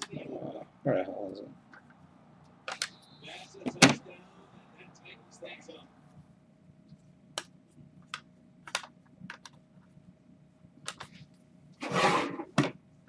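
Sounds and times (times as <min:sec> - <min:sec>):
plastic case sliding scrape: 0:11.8 - 0:12.6.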